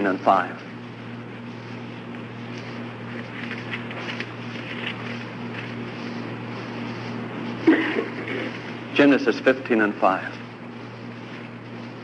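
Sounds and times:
electrical hum and hiss: 0.0 - 12.0.

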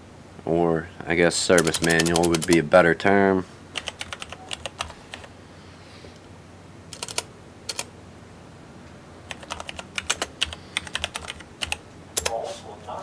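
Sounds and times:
computer keyboard typing: 1.5 - 2.7, 3.8 - 5.3, 6.9 - 7.9, 9.2 - 12.4.

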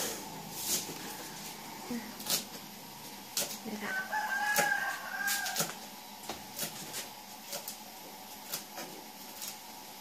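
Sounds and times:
rooster crowing: 3.8 - 5.8
knife chopping on wooden block: 4.4 - 7.8.

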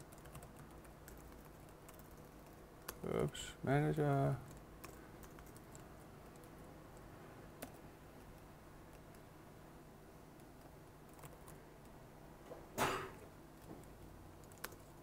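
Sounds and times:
computer keyboard keystrokes: 0.0 - 3.0, 4.4 - 9.2, 10.4 - 12.0, 13.6 - 15.0
faint steady low hum: 0.0 - 15.0.

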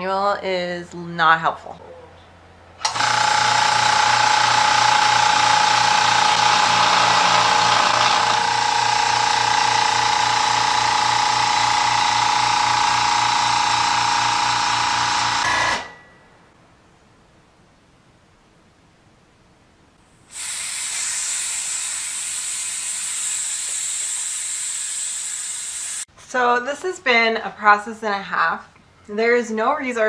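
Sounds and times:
electric air compressor running: 2.8 - 16.0, 20.3 - 26.0.

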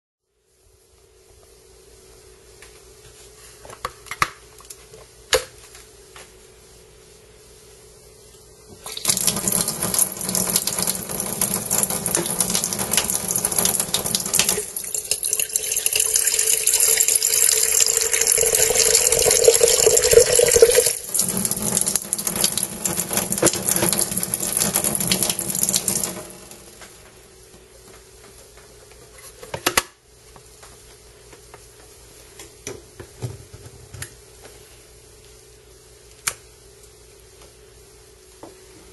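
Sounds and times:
tap water running into kettle: 8.8 - 26.8.

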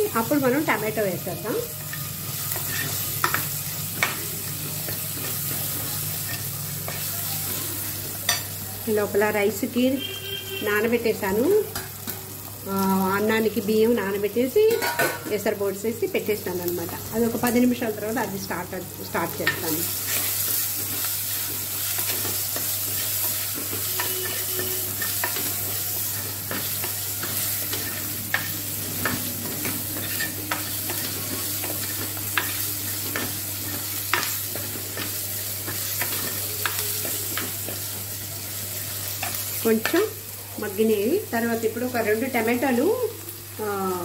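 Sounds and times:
onions sizzling in hot oil: 0.0 - 44.0.

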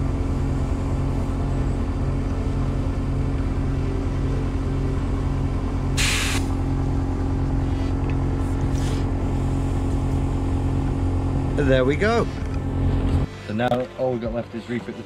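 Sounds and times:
motor hum: 0.0 - 13.5
air hissing: 6.0 - 6.6.

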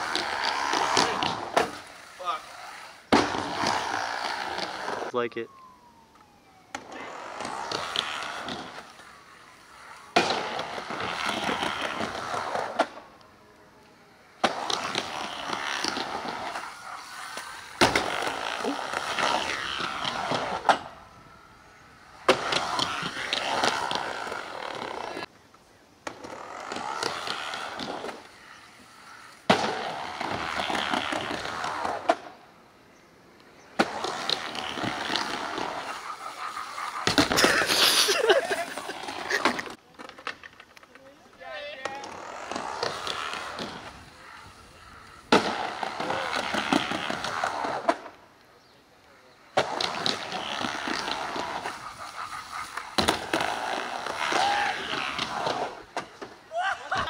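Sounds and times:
skateboards rolling on wooden ramps: 0.0 - 25.3, 26.0 - 32.8, 33.4 - 48.4, 49.2 - 57.0
skateboard slapping down: 14.4 - 20.9, 33.8 - 40.5, 45.3 - 48.1, 49.6 - 57.0.

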